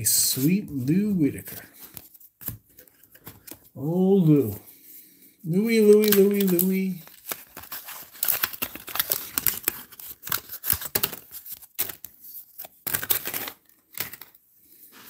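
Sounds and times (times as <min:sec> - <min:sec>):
wax paper wrapper tearing: 0:05.7 - 0:14.4.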